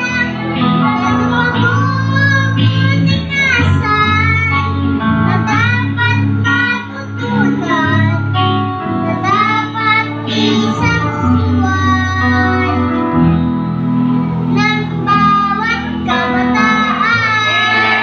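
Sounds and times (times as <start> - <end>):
boy singing into microphone: 0.0 - 13.4, 14.4 - 18.0
guitar: 0.0 - 18.0.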